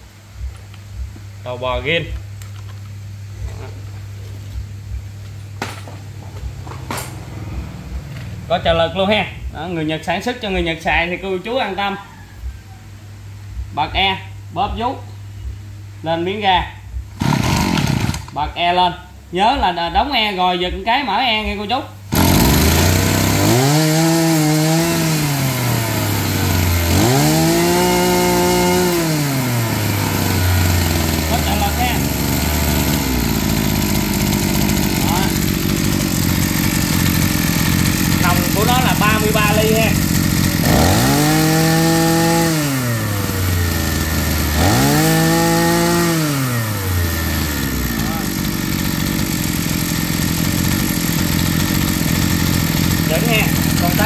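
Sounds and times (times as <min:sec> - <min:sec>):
brush cutter engine idling and revving: 0:06.4 - 0:11.8, 0:16.9 - 0:18.5, 0:21.4 - 0:54.0.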